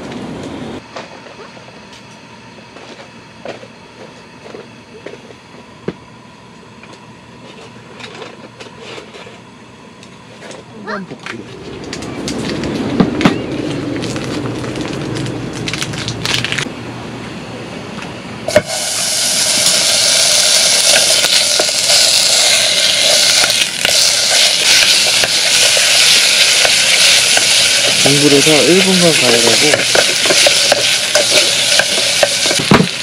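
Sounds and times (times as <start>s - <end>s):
food sizzling in a pan: 18.5s - 33.0s.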